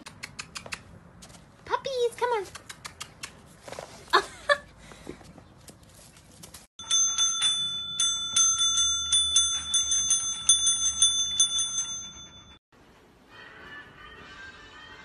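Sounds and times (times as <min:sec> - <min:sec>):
service bell dinging: 0:06.8 - 0:12.6
faint music: 0:12.8 - 0:15.0.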